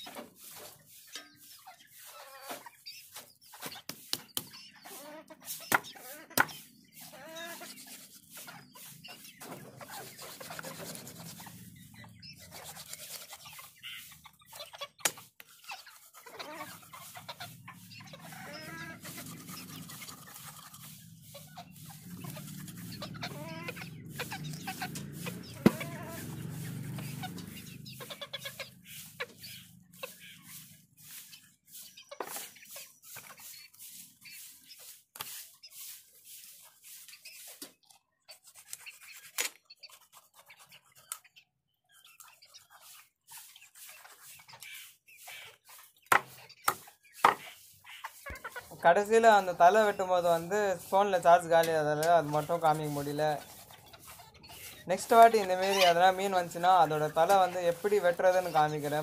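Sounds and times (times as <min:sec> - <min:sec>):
chickens clucking: 0:00.0 - 0:59.0
knife chopping on wooden board: 0:46.1 - 0:47.4.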